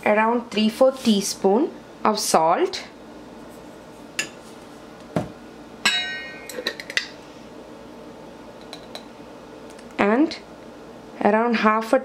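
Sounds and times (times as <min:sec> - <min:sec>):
kitchenware clinks and knocks: 0:05.9 - 0:07.1.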